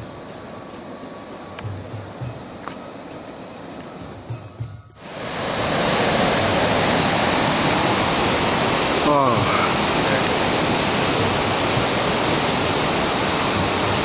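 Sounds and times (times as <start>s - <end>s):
outdoor hiss: 0.0s - 14.0s
rushing stream water: 0.0s - 14.0s
soft low thuds: 1.6s - 2.8s.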